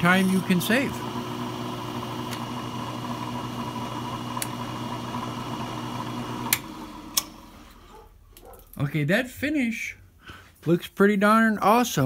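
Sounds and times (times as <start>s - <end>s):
brake lathe motor humming: 0.0s - 7.8s.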